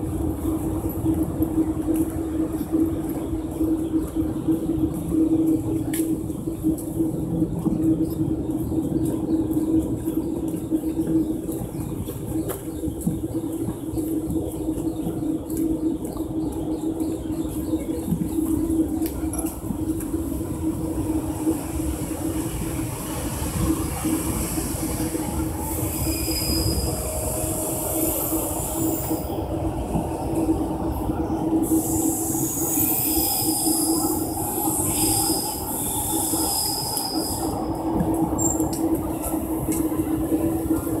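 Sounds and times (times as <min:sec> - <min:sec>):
electric train humming: 0:00.0 - 0:41.0
high wheel squeals: 0:25.6 - 0:29.2.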